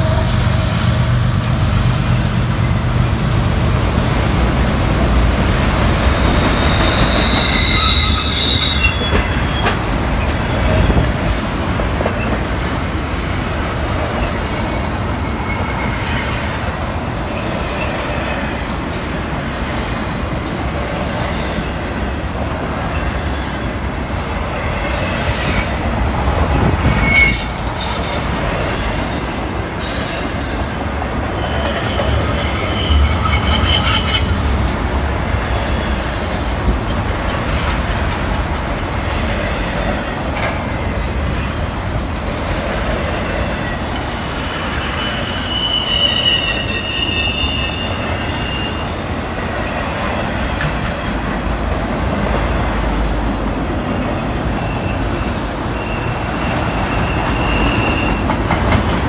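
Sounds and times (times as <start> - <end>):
train wheels rumbling on rail: 0.0 - 59.0
wheel squeal: 6.4 - 9.8, 25.0 - 30.2, 31.3 - 34.3, 43.6 - 49.0, 54.6 - 59.0.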